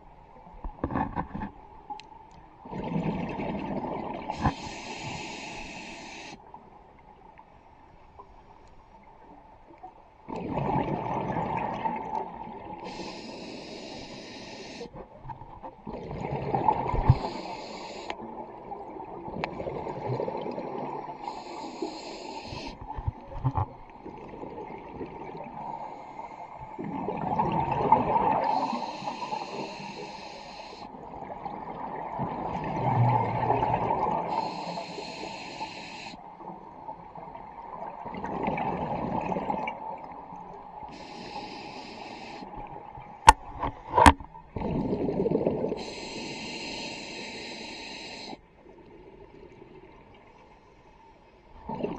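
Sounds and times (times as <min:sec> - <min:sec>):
exhaled bubbles: 0:02.6 - 0:04.8, 0:10.3 - 0:14.0, 0:15.0 - 0:17.5, 0:18.2 - 0:21.5, 0:26.7 - 0:29.8, 0:31.0 - 0:34.7, 0:36.4 - 0:41.4, 0:44.1 - 0:46.1, 0:51.6 - 0:51.9
regulator inhale hiss: 0:04.3 - 0:06.4, 0:12.8 - 0:15.0, 0:16.9 - 0:18.2, 0:21.2 - 0:22.9, 0:25.7 - 0:26.6, 0:28.4 - 0:31.0, 0:34.2 - 0:36.3, 0:40.9 - 0:42.6, 0:45.8 - 0:48.5.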